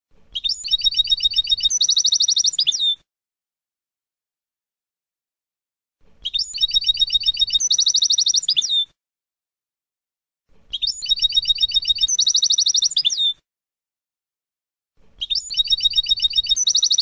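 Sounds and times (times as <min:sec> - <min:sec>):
goldfinch trilling song: 0:00.4 - 0:03.0, 0:06.2 - 0:08.9, 0:10.7 - 0:13.4, 0:15.2 - 0:17.0.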